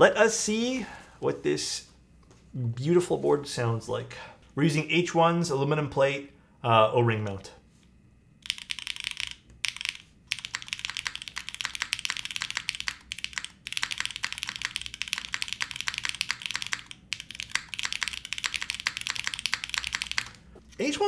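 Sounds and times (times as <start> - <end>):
mechanical keyboard typing: 8.4 - 20.4.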